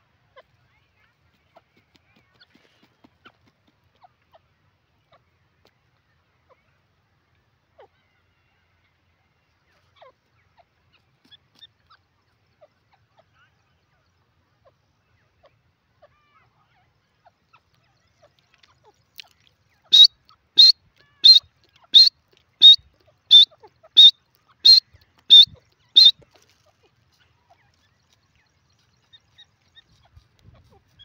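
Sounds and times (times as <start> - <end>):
bird calling: 19.8 - 26.5.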